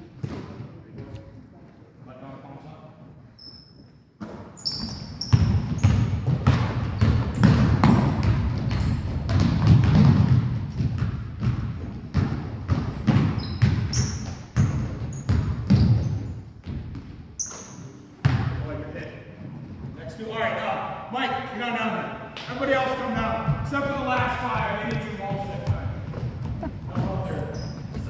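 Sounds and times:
sneakers squeaking on floor: 0:03.3 - 0:18.4, 0:24.6 - 0:28.0
basketballs bouncing on hardwood: 0:04.2 - 0:17.4, 0:18.2 - 0:18.6, 0:23.1 - 0:28.0.

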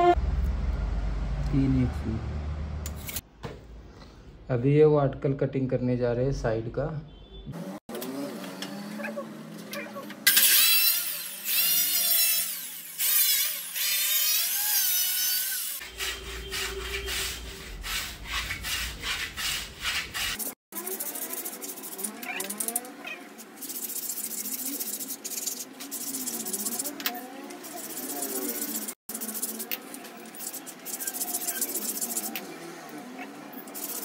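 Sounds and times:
cutting and rubbing noise: 0:07.9 - 0:34.0
power saw cutting: 0:10.1 - 0:20.4
repeated sawing strokes: 0:10.2 - 0:34.0.

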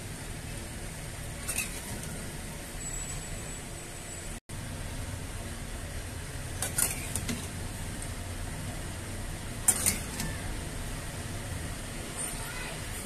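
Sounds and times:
low steady hum: 0:00.0 - 0:13.0
metal spatula scraping a pan: 0:01.3 - 0:03.3, 0:06.5 - 0:07.6, 0:09.6 - 0:10.3.

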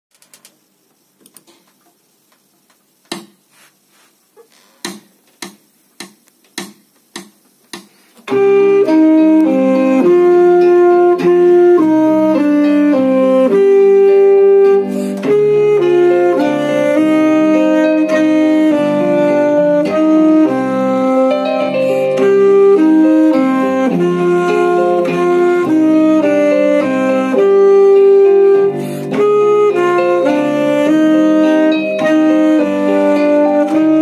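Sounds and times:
evenly spaced taps: 0:04.8 - 0:08.0
alto saxophone slow melody: 0:08.2 - 0:34.0.

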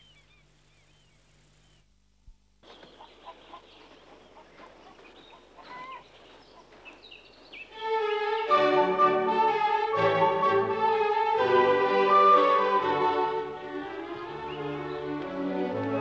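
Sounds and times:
faint bird chirps: 0:00.0 - 0:01.9, 0:02.6 - 0:07.7
steady hiss: 0:00.0 - 0:03.0
string orchestra: 0:07.7 - 0:16.0.

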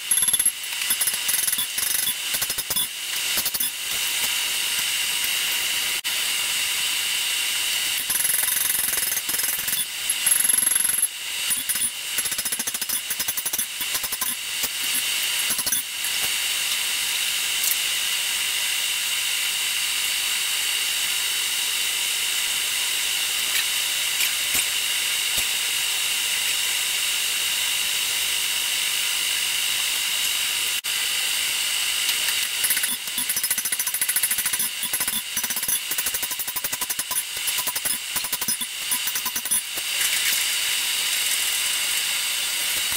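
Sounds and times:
electric blower fan hissing: 0:02.2 - 0:08.0, 0:13.7 - 0:33.2, 0:39.6 - 0:42.9.

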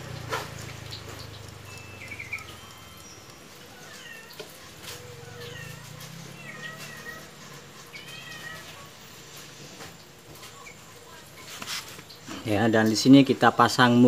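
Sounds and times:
cat meowing: 0:03.7 - 0:09.0.

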